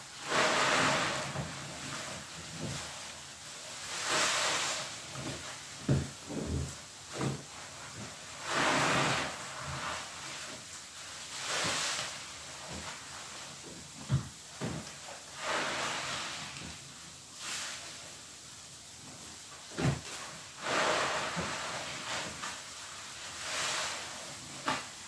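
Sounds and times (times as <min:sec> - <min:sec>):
suds hissing as pressed out: 0:00.2 - 0:03.0, 0:03.9 - 0:10.5, 0:14.0 - 0:16.8, 0:19.7 - 0:25.0
soapy sponges squelching: 0:19.8 - 0:25.0.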